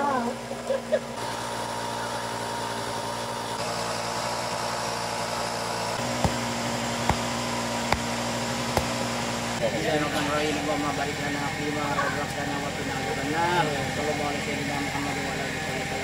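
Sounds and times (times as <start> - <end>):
engine-like hum: 0.0 - 16.0
tool knocking on wood: 6.0 - 9.1.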